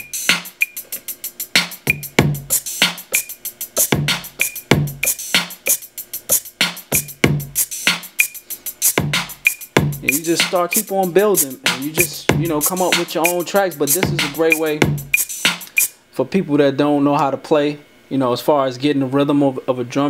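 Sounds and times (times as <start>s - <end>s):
drum machine loop: 0.0s - 16.0s
shaker hits: 0.0s - 16.0s.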